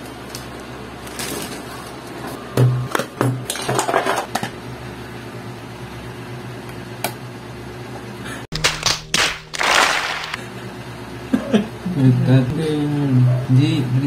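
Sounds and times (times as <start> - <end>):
packaging rustling: 8.6 - 10.4.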